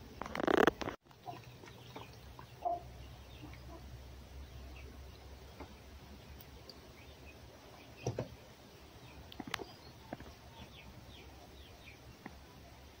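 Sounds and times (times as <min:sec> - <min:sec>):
birds chirping: 0:00.4 - 0:13.0.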